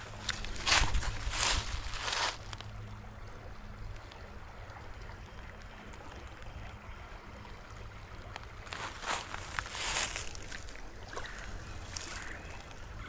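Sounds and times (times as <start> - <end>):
road traffic rumble: 0.0 - 13.0
flowing water hiss: 7.3 - 13.0.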